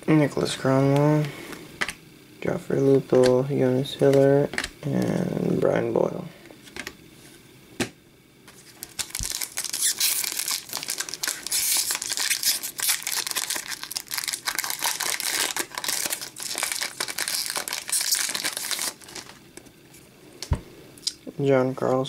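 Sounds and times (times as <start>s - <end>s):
foil wrapper crinkling: 8.5s - 19.4s.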